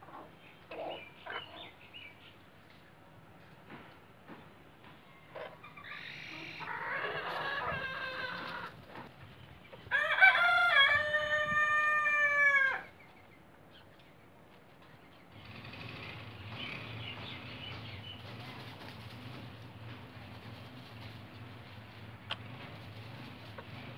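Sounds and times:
rooster crowing: 9.9s - 12.9s
low steady rumble: 15.3s - 23.9s.

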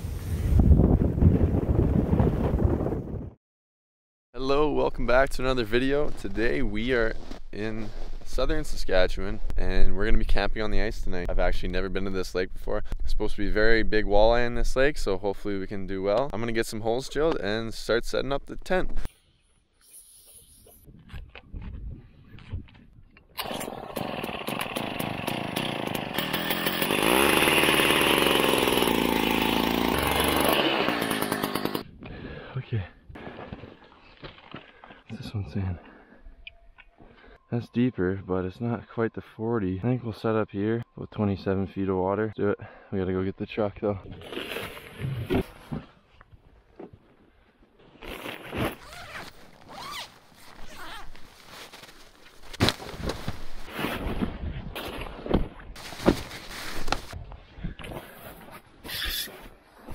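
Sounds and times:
ice auger engine revving: 23.4s - 31.8s
zipper pulls: 44.2s - 45.6s, 48.0s - 52.0s
nylon fabric rustling: 48.1s - 54.3s, 55.8s - 57.2s.

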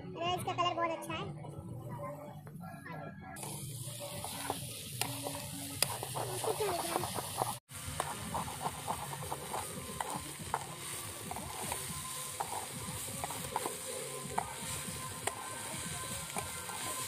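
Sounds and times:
fish frying and sizzling: 3.4s - 17.0s.

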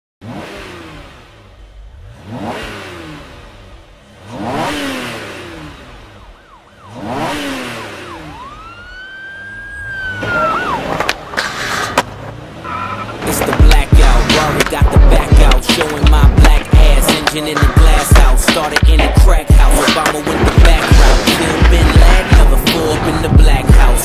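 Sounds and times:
siren-like rising tone: 5.6s - 11.3s
cars speeding past: 6.8s - 24.0s.

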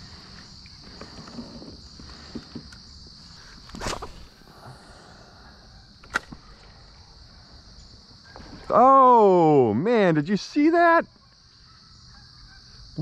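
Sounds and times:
insects droning: 0.0s - 13.0s
sharp click: 6.0s - 6.4s.

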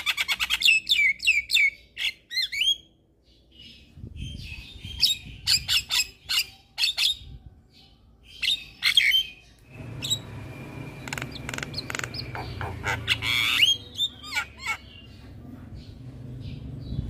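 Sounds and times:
bird chattering calls: 11.0s - 15.2s.

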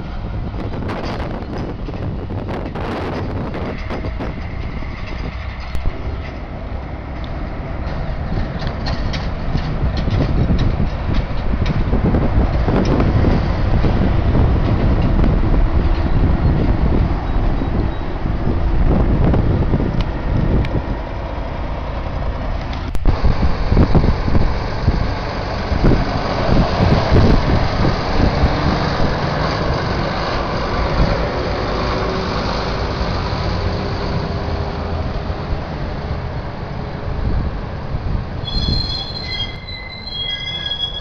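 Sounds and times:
diesel engine rumble: 0.0s - 41.0s
tyre noise on road: 0.0s - 41.0s
high steady squealing: 38.4s - 41.0s.

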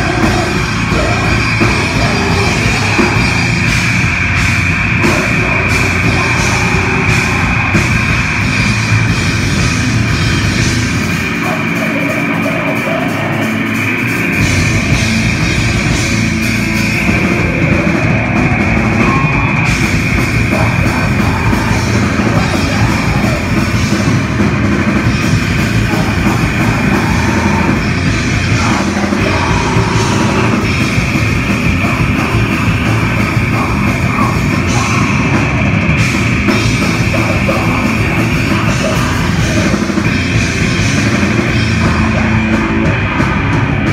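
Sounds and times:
heavy metal band playing: 0.0s - 43.9s.

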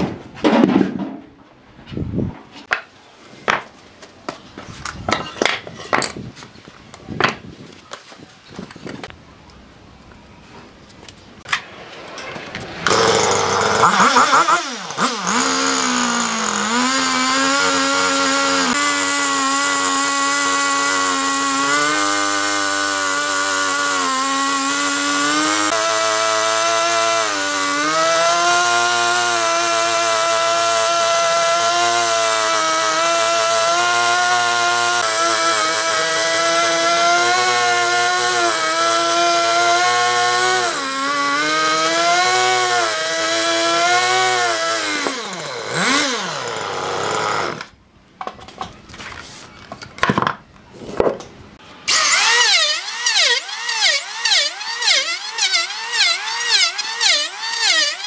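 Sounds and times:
chainsaw cutting log: 12.6s - 47.8s, 50.8s - 58.0s.

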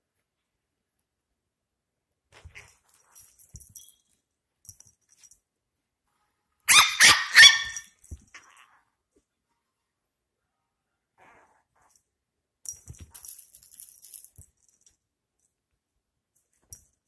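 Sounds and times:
puppy yapping: 6.7s - 7.9s.

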